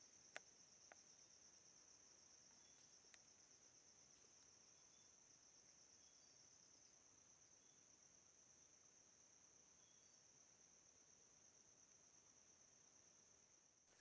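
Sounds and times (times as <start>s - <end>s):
faint insect chorus: 0.0s - 14.0s
faint click: 2.7s - 3.3s.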